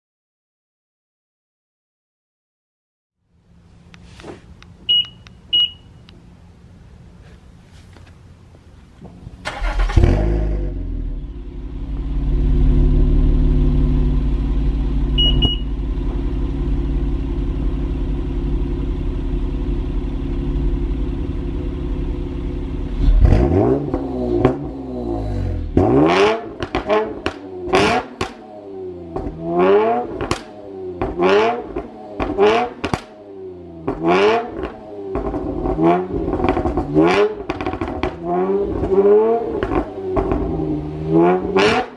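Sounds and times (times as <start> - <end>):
car engine idling: 3.3 - 25.8
car engine cranking: 9.2 - 10.8
car engine revving: 9.4 - 41.9.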